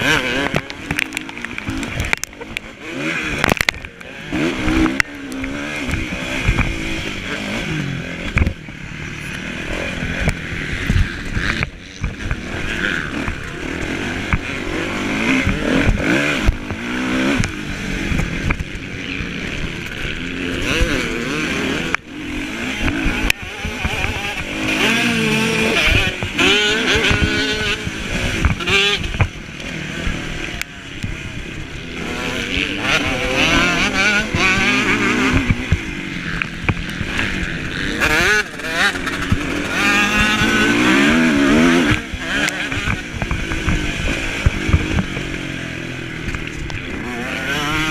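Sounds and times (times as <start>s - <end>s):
motocross bike engine revving: 0.0s - 47.9s
other motorbikes: 0.0s - 47.9s.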